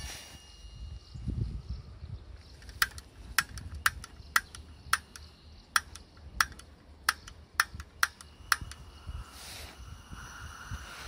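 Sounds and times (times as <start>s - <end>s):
gas stove clicks: 2.7s - 8.8s.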